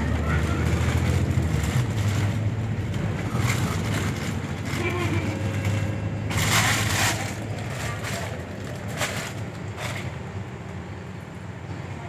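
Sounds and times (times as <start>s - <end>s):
bus engine hum: 0.0s - 12.0s.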